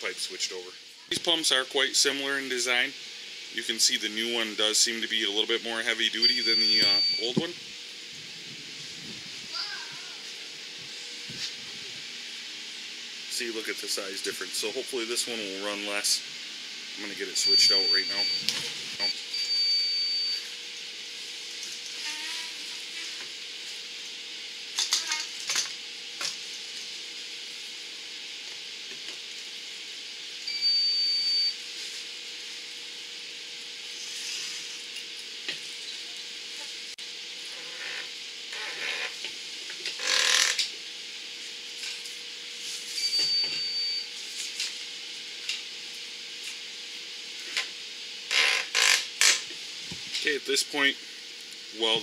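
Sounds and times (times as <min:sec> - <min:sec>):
faint hum: 0:00.0 - 0:20.6
short high beep: 0:06.2 - 0:07.5, 0:17.4 - 0:20.4, 0:43.0 - 0:44.1.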